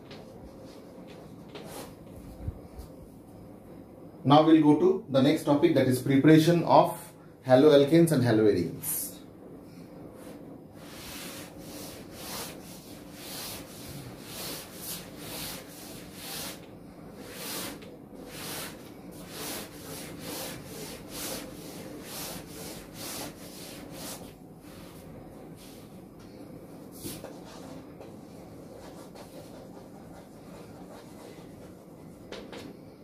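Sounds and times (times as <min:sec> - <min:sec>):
duster rubbing on chalkboard: 0:10.8 - 0:25.9, 0:27.0 - 0:32.0.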